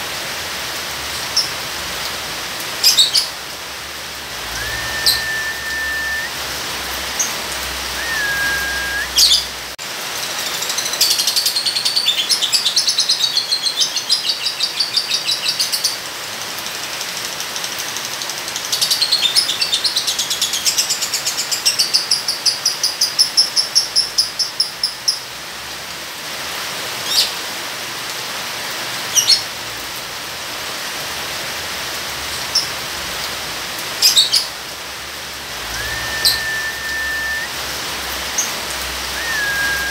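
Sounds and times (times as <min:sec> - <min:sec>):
steady rain: 0:00.0 - 0:39.9
bird whistle: 0:04.4 - 0:06.4, 0:07.8 - 0:09.5, 0:35.6 - 0:37.6, 0:39.1 - 0:39.9
lovebird trilling: 0:04.6 - 0:06.3, 0:07.9 - 0:09.4, 0:35.7 - 0:37.5, 0:39.2 - 0:39.9.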